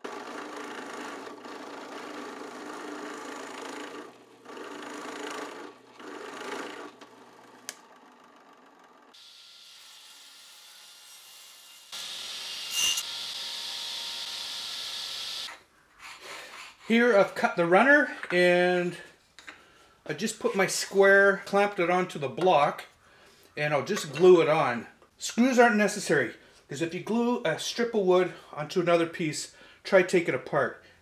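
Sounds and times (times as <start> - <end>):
table saw ripping wood: 9.2 - 15.5.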